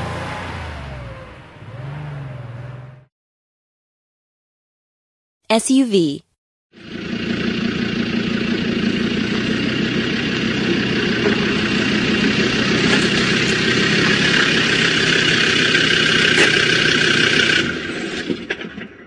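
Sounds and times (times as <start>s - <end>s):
car engine idling: 6.8s - 17.9s.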